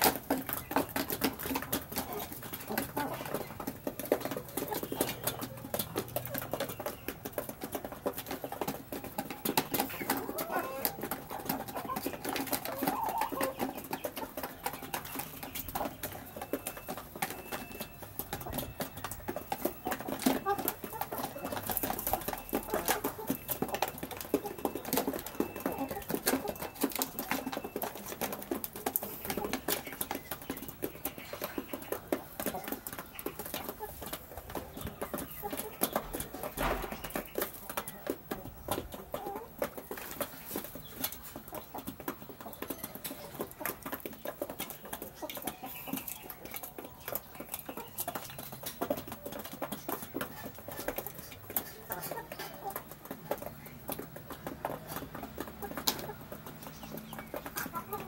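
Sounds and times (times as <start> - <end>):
chickens clucking: 0.0 - 58.0
beaks tapping on hard floor: 39.8 - 58.0.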